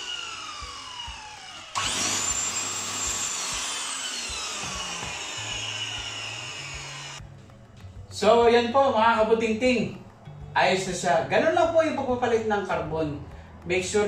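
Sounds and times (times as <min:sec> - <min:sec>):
vacuum cleaner motor whine: 0:00.0 - 0:07.2.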